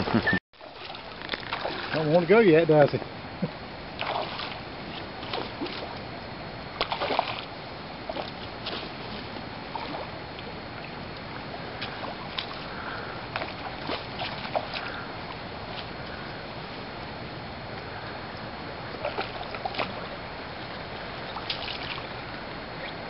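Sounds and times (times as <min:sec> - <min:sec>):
stream water running: 0:00.0 - 0:23.0
fish splashing at surface: 0:00.6 - 0:02.0, 0:04.0 - 0:04.6, 0:06.8 - 0:07.5.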